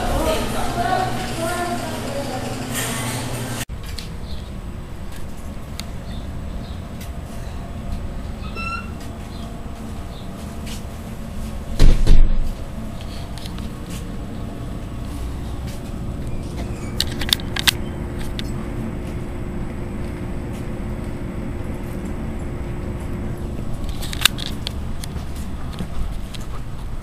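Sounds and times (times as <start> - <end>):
vending machine humming: 0.0 - 27.0
loud thump: 11.8 - 12.5.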